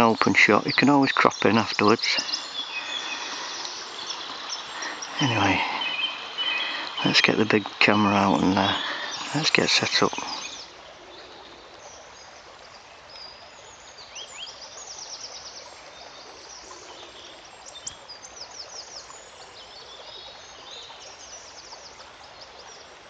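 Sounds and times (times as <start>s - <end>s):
background hiss: 0.0s - 23.0s
songbirds chirping and trilling: 0.0s - 23.0s.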